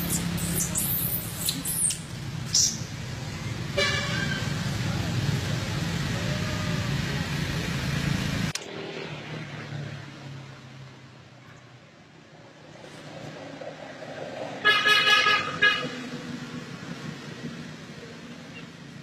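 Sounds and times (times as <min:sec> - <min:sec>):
vehicle engine humming: 0:00.0 - 0:11.0
car horn toot: 0:03.8 - 0:04.4.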